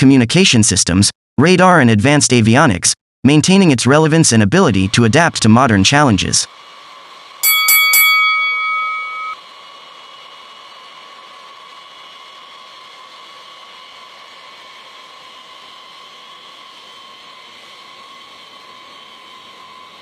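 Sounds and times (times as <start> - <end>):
bell-like chime: 7.4 - 9.4.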